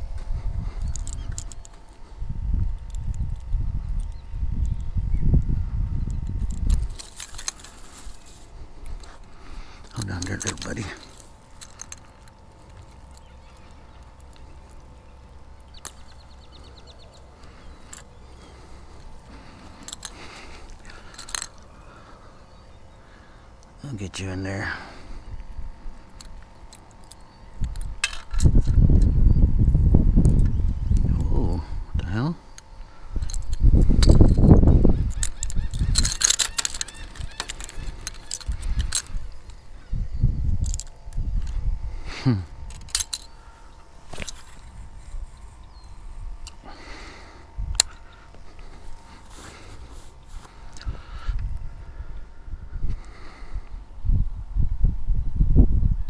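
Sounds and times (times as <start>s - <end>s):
handling noises: 0.0s - 4.8s, 6.3s - 29.1s, 32.4s - 51.7s
low wind rumble: 0.0s - 56.0s
clicks rattles and scrapes: 6.4s - 13.7s, 33.2s - 39.6s.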